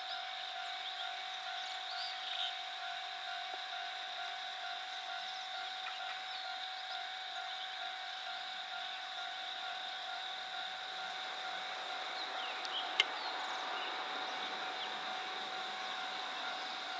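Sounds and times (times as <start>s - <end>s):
level-crossing warning bell: 0.0s - 16.9s.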